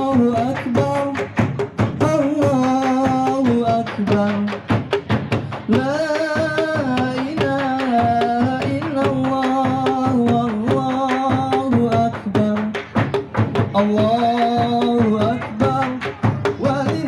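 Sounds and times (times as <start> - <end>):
man singing long held notes: 0.0 - 1.3, 5.5 - 12.8, 13.8 - 17.0
large drums beating: 0.0 - 17.0.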